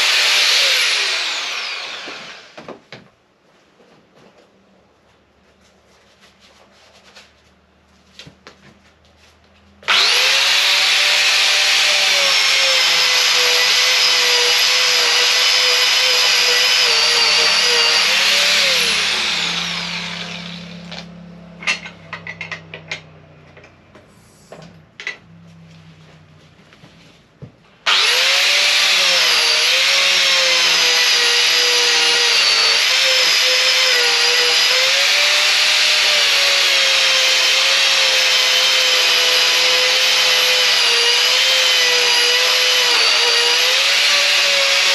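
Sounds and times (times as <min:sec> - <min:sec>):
angle grinder grinding wood: 0:00.0 - 0:02.6, 0:09.8 - 0:23.1, 0:27.8 - 0:44.9.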